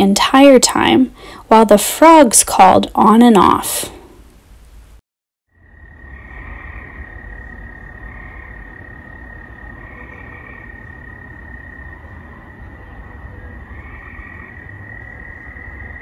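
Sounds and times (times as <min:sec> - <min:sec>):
crickets calling: 0:05.5 - 0:16.0
tree frogs trilling: 0:05.5 - 0:16.0.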